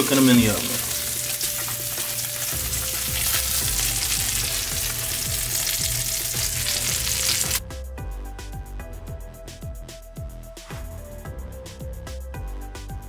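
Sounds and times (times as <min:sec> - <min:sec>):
food sizzling in oil: 0:00.0 - 0:07.6
music: 0:00.0 - 0:13.0.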